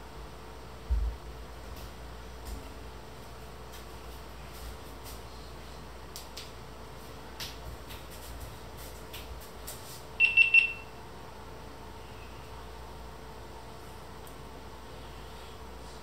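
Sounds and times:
high electronic beeps: 10.2 - 10.8.

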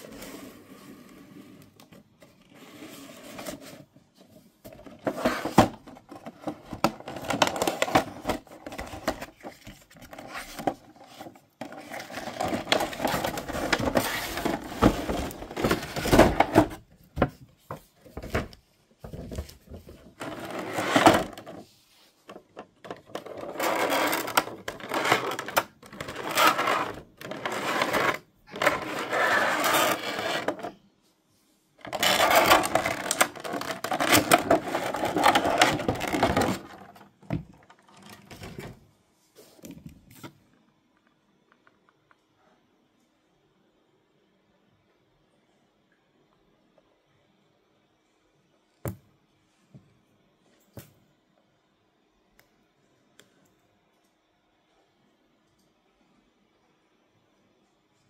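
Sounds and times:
packaging rustling and crinkling: 31.8 - 37.1.

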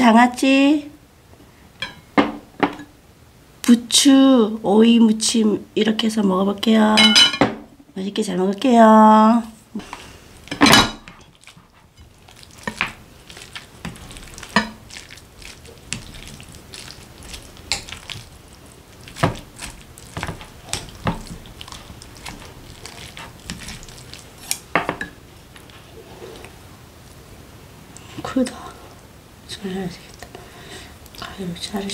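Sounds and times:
utensils clinking on glass bowl: 7.0 - 7.5, 14.4 - 14.8.

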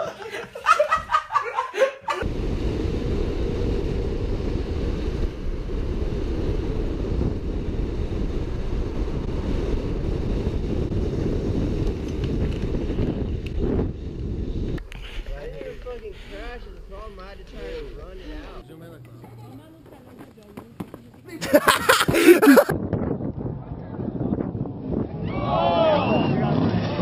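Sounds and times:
wind buffeting microphone: 2.2 - 18.6, 21.7 - 27.0.

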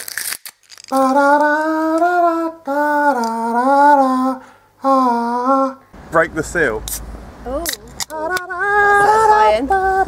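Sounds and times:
person singing long held notes: 0.9 - 5.9.

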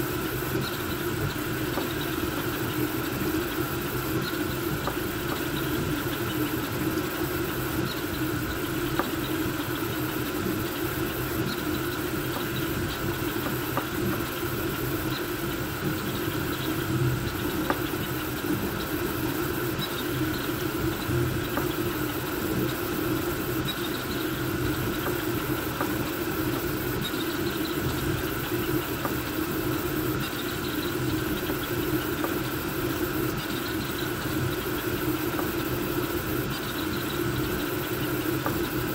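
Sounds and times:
cooling fans whirring: 0.0 - 38.9.

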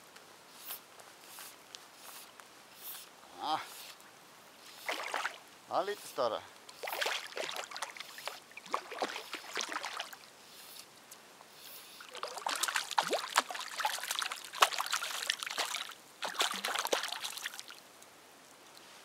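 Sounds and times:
fish splashing at water surface: 4.8 - 5.4, 6.8 - 10.2, 12.0 - 17.8.

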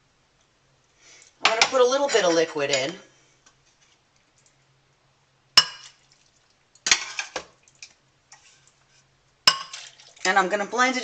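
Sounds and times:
utensil clinking against pot: 9.5 - 9.9
liquid being ladled: 9.5 - 10.3.

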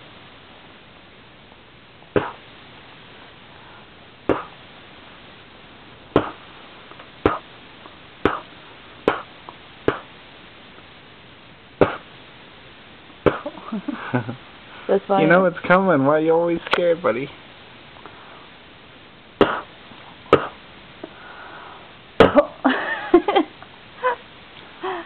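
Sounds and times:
person making lip pops: 2.2 - 2.4, 4.3 - 4.6, 6.2 - 6.4, 8.3 - 8.5, 9.1 - 9.3, 9.9 - 10.1, 11.8 - 12.0, 13.3 - 13.5, 20.3 - 20.6.

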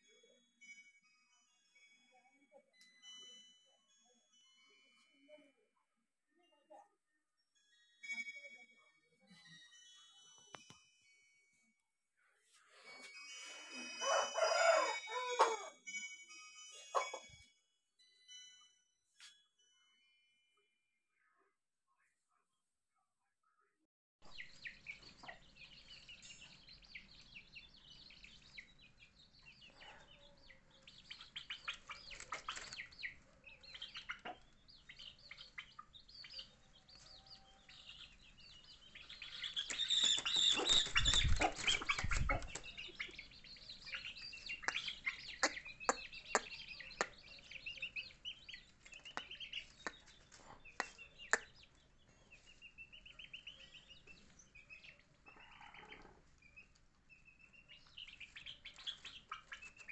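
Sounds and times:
chickens peeping and clucking: 12.9 - 15.8, 16.8 - 17.4, 24.3 - 59.9
wings flapping: 39.6 - 42.8.

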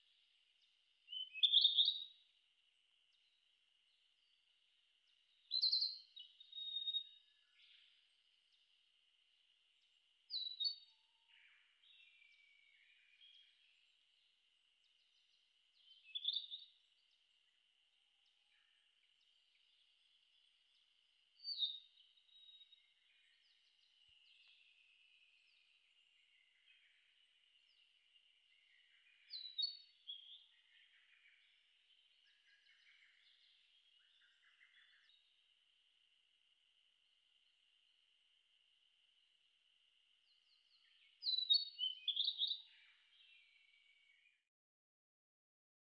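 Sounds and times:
flycatcher singing: 0.1 - 2.3, 5.1 - 8.7, 9.8 - 11.0, 11.7 - 17.4, 18.6 - 35.3, 40.2 - 44.3.

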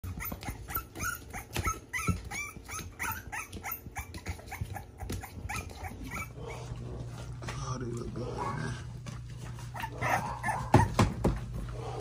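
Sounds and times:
puppies whimpering and yipping: 0.0 - 6.8, 9.6 - 11.1.

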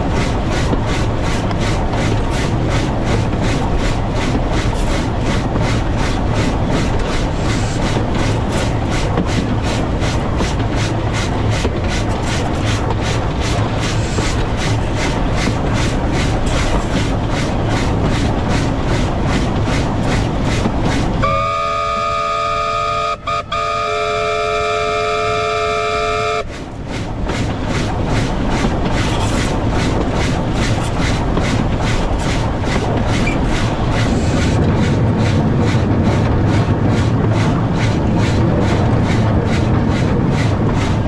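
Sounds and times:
steam locomotive chuffing: 0.0 - 41.0
steam whistle chord: 21.2 - 26.5.

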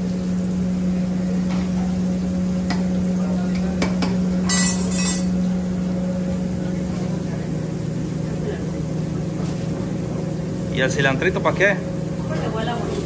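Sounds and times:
metal clinks on pot: 4.0 - 5.4.

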